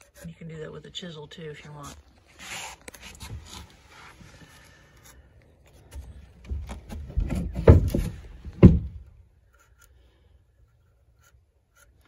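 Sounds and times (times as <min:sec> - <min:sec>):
knife scraping wood: 0:00.0 - 0:00.5, 0:01.8 - 0:08.2, 0:09.4 - 0:12.0.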